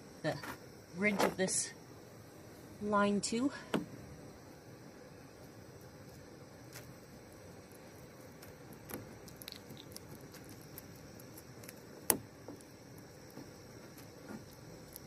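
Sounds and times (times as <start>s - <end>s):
fingers crackling and scratching: 6.1s - 15.0s.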